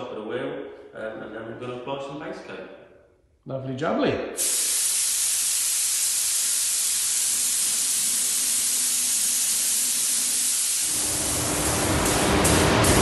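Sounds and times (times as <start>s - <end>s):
compressed air hissing: 4.4s - 13.0s.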